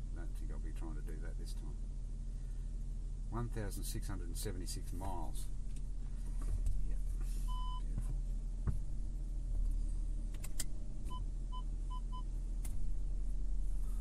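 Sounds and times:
diesel engine idling: 0:00.0 - 0:14.0
parking sensor beeps: 0:07.5 - 0:07.9, 0:11.1 - 0:12.3.

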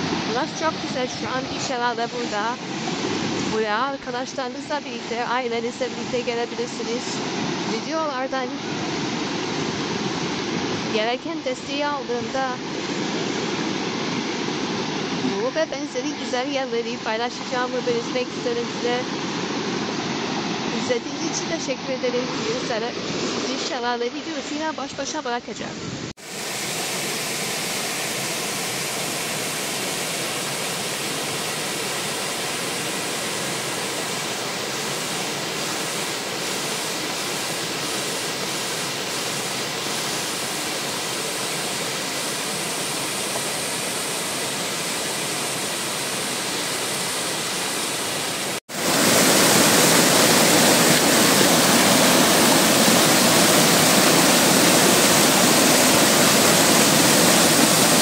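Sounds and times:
waterfall rushing: 0:00.0 - 0:11.6, 0:26.2 - 0:58.0.

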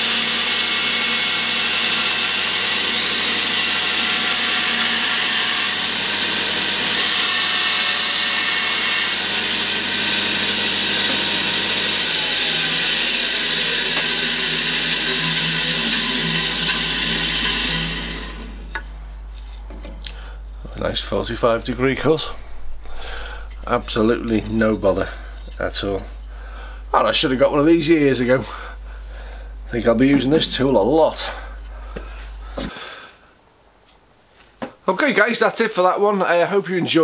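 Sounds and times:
bandsaw cutting wood: 0:00.0 - 0:18.9, 0:20.9 - 0:33.0
low hum: 0:13.9 - 0:32.6.

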